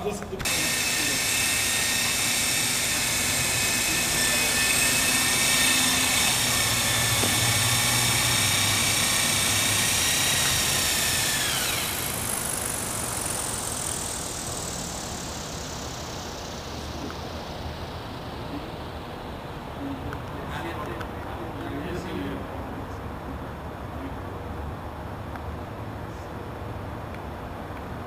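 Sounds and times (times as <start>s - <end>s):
helicopter engine whine: 0.4s - 20.7s.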